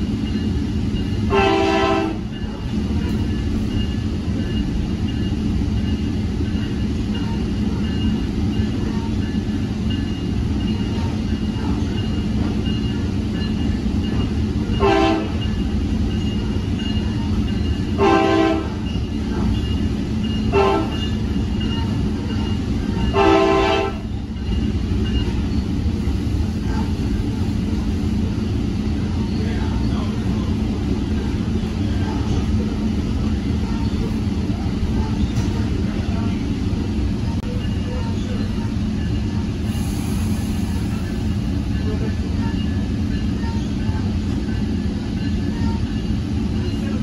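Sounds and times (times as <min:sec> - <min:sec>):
train rumbling: 0:00.0 - 0:47.0
train horn blasts: 0:01.3 - 0:02.3, 0:14.8 - 0:15.4, 0:18.0 - 0:18.8, 0:20.5 - 0:21.1, 0:23.1 - 0:24.1.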